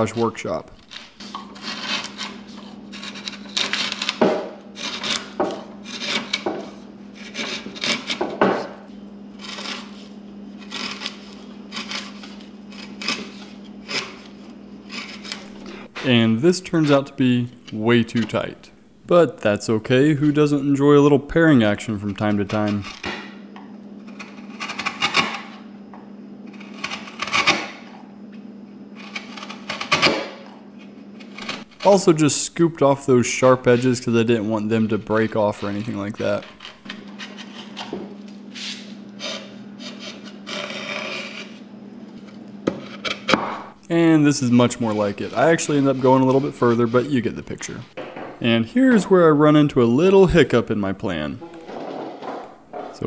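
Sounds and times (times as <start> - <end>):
chisel paring wood: 0.8 - 8.8, 10.6 - 14.3, 14.9 - 16.1, 24.2 - 25.6, 26.6 - 27.9, 29.0 - 30.5, 31.4 - 32.0.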